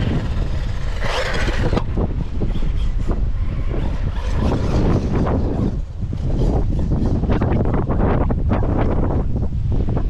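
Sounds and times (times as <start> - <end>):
rc buggy driving over grass: 0.0 - 6.5
wind rumbling on microphone: 0.0 - 10.0.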